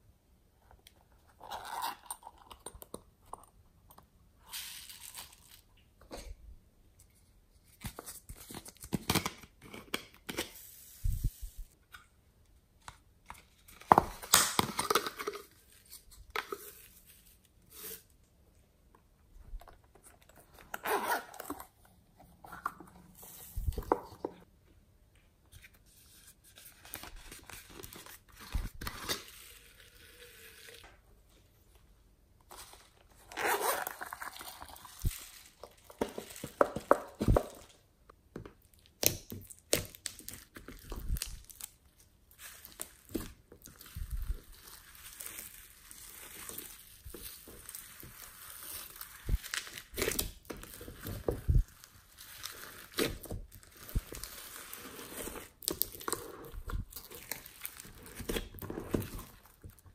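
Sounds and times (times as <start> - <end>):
zipper on silicone pouch: 20.8 - 21.6, 33.2 - 34.8.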